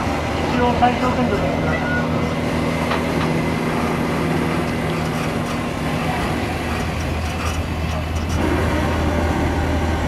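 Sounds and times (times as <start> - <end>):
low engine drone: 0.0 - 10.0
rolling and wind noise: 0.0 - 10.0.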